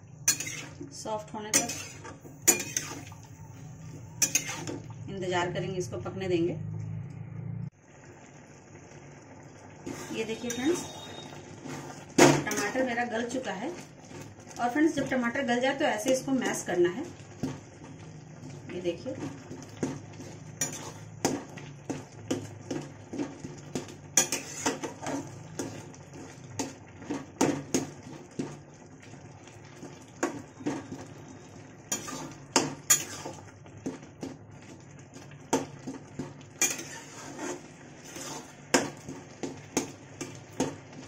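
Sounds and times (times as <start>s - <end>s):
metal spatula scraping metal pan: 0.2s - 4.9s, 9.8s - 12.9s, 19.2s - 28.5s, 31.9s - 34.3s, 35.5s - 41.0s.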